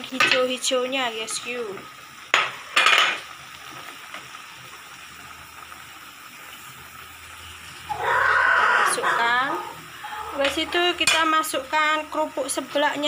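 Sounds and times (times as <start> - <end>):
sauce sizzling in a wok: 0.0 - 13.0.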